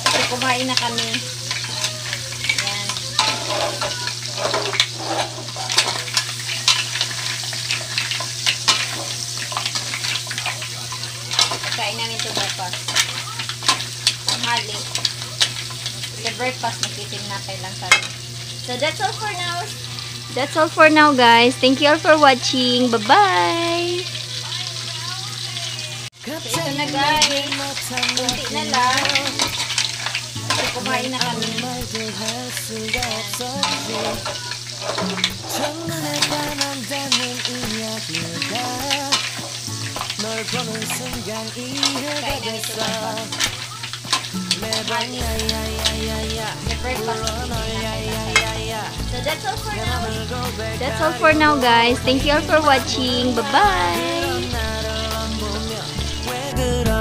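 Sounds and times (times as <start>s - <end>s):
sizzling in pan: 0.0s - 57.0s.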